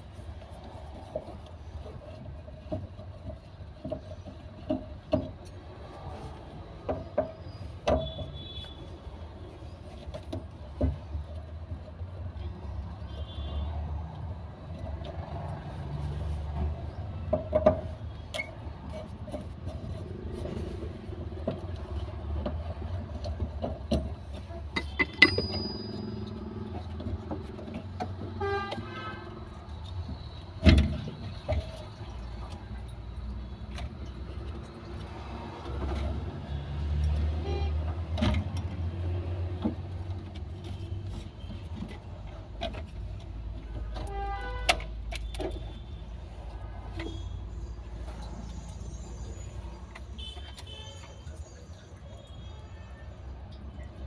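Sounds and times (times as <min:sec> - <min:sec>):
street traffic rumble: 0:00.0 - 0:54.0
car horn honking: 0:08.0 - 0:08.9, 0:13.1 - 0:13.8, 0:28.3 - 0:29.4, 0:37.4 - 0:37.9, 0:44.0 - 0:44.9, 0:50.2 - 0:51.3
metal tools clicking and knocking: 0:21.6 - 0:28.3.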